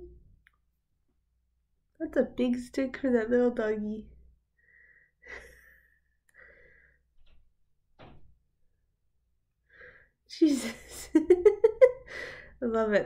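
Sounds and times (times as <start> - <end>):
woman breathing faintly: 4.6 - 7.1.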